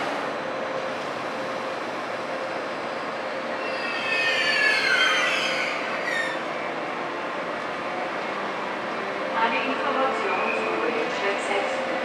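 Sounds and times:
train rolling noise: 0.0s - 12.0s
train brake squeal: 3.5s - 6.5s.

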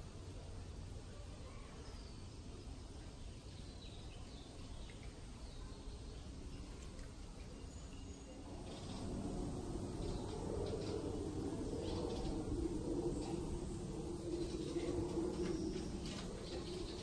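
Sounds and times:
faint bird chirps: 1.2s - 17.0s
steady low rumble: 8.4s - 17.0s.

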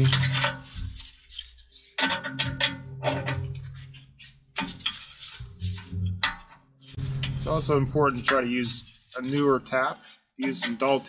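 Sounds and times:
low steady hum: 6.9s - 9.7s.

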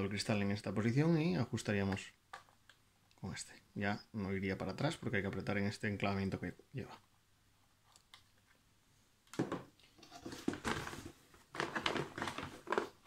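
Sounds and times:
cardboard packaging rustling: 10.0s - 13.0s.

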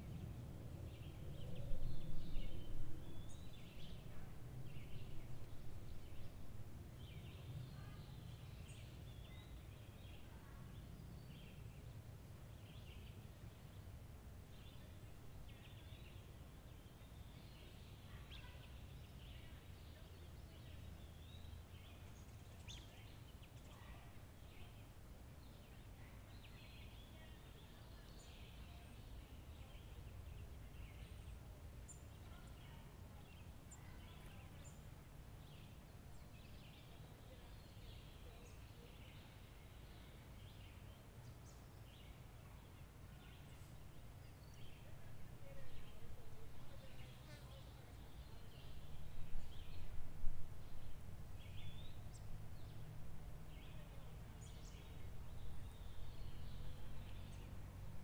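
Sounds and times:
birds chirping: 14.5s - 50.0s, 50.6s - 57.7s.

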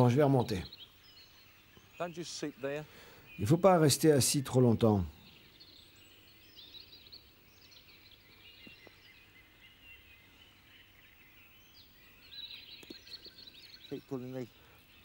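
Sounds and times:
birds chirping and trilling: 0.0s - 15.0s.

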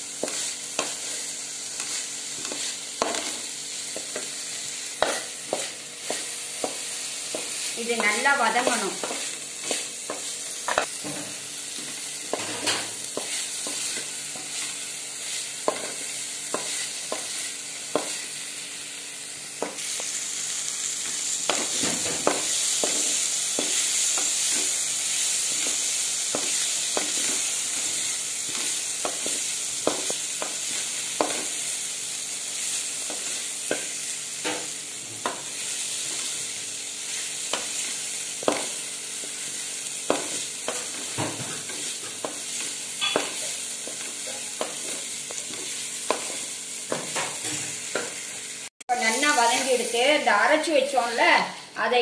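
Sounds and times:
vegetables sizzling in oil: 0.0s - 52.0s
spatula scraping and tapping pan: 0.2s - 4.4s, 5.0s - 18.3s, 21.5s - 24.8s, 25.4s - 31.6s, 37.5s - 39.4s, 40.0s - 48.3s.

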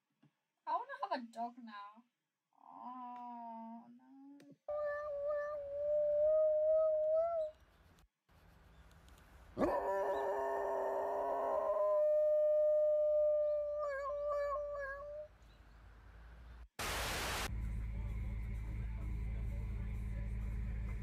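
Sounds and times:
dog howling: 9.6s - 15.3s
steady low rumble: 17.4s - 21.0s.

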